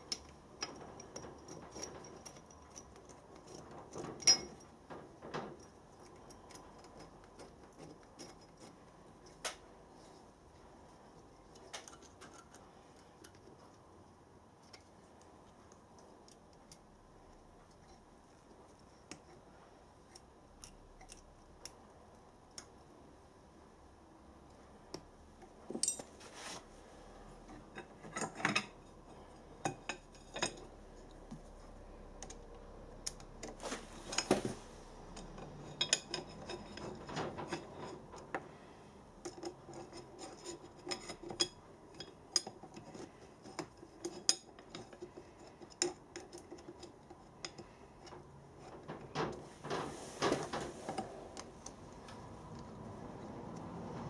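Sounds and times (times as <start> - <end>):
metallic clicks and clinks: 25.7 - 26.2.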